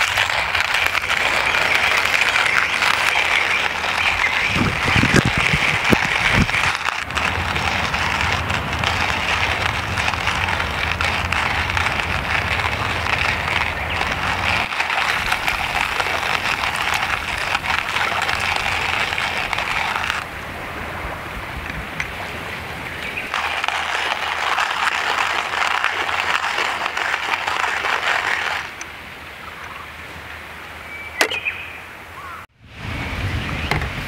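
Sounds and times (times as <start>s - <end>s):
hand coffee grinder crunching: 0.0s - 20.3s, 23.1s - 28.8s.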